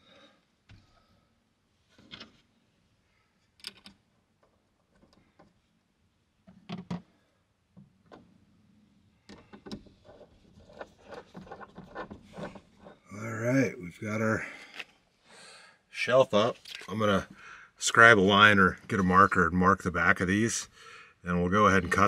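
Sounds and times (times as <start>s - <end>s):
metal hardware clicking on wood: 3.6s - 5.6s.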